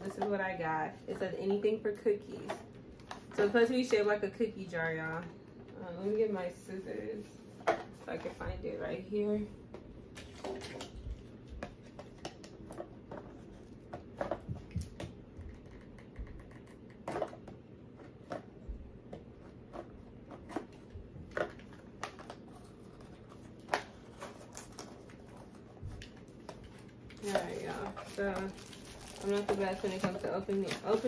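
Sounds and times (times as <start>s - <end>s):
packaging clicks and rustles: 20.2s - 31.0s.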